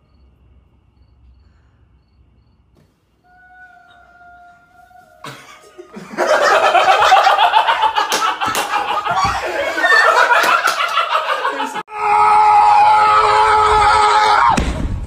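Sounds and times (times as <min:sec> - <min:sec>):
faint held tone: 0:03.2 - 0:06.0
people laughing: 0:03.8 - 0:11.9.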